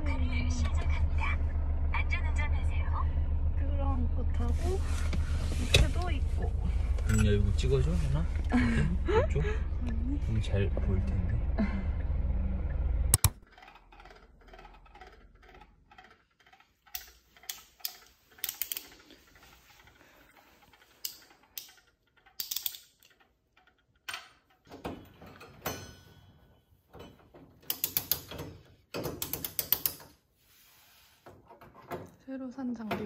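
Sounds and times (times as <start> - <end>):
car cabin road rumble: 0.0 - 13.3
screwdriver ratchet clicks: 13.2 - 19.1, 21.0 - 23.2, 27.7 - 28.3
screwdriver bits clicking and rattling: 13.2 - 24.6, 27.7 - 28.4, 29.0 - 30.0.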